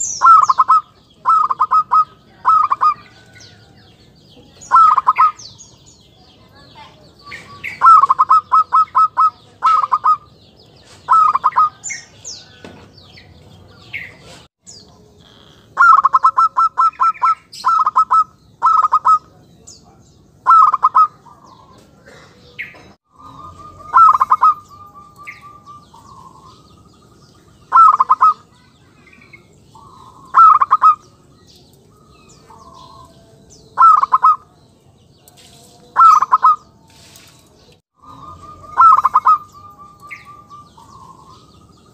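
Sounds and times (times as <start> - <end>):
dove cooing: 0.0 - 3.3, 4.6 - 5.6, 7.3 - 10.3, 11.0 - 11.9, 15.2 - 19.4, 20.4 - 26.8, 27.7 - 28.6, 29.8 - 31.2, 31.9 - 34.6, 36.0 - 36.7, 38.0 - 41.9.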